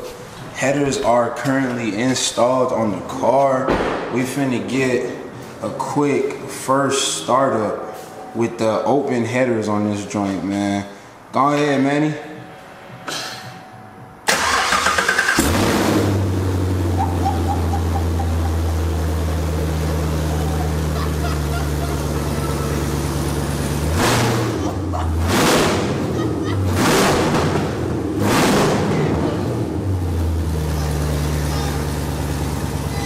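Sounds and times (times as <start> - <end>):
engine revving blips: 12.3 - 33.0
car engine cranking and starting: 14.2 - 33.0
loud engine idle: 15.3 - 25.2, 29.0 - 33.0.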